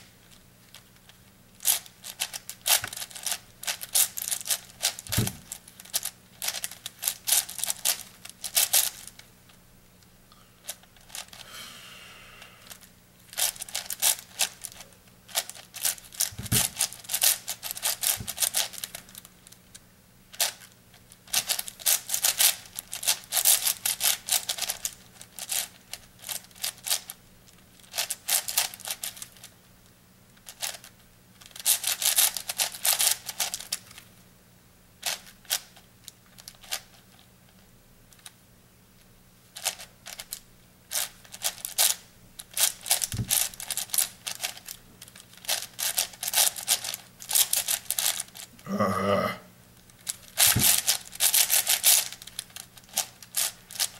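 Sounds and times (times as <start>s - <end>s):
puzzle cube rattly clicks: 1.6s - 9.2s, 10.6s - 11.4s, 12.7s - 19.6s, 20.3s - 27.2s, 27.8s - 29.5s, 30.4s - 33.9s, 35.0s - 37.0s, 39.6s - 48.5s, 49.9s - 53.9s.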